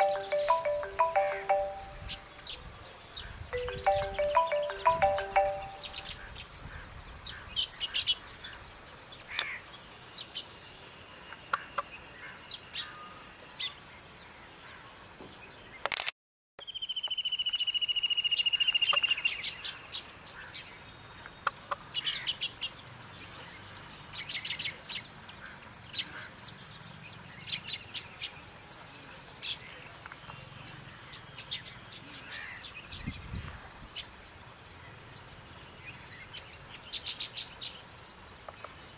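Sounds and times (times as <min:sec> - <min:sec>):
birds chirping: 0:00.0 - 0:13.8.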